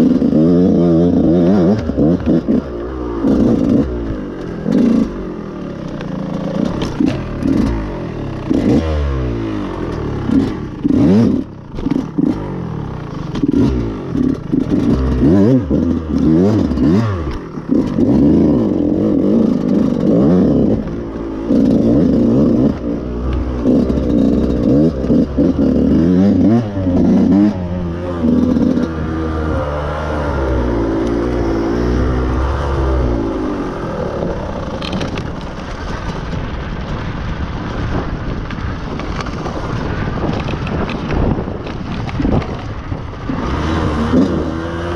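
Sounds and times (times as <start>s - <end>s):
dirt bike engine revving: 0.0s - 35.4s, 39.8s - 44.9s
bike clattering over rough ground: 1.9s - 7.8s, 9.8s - 29.0s, 34.5s - 43.5s.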